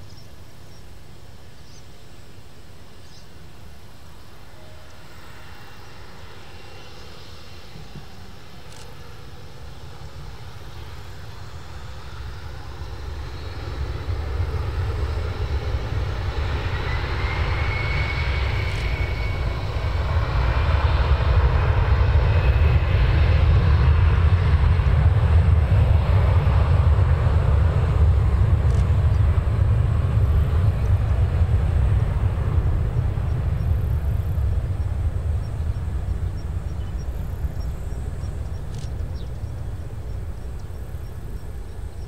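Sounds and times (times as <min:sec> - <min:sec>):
rising jet whine: 0:03.4 - 0:42.0
jet engines throttling up: 0:05.2 - 0:42.0
deep rumble: 0:14.0 - 0:42.0.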